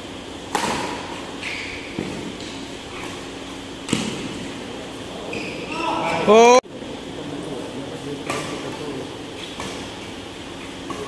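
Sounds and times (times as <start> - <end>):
badminton racket hitting shuttlecock: 0.5 - 4.5, 9.4 - 11.0.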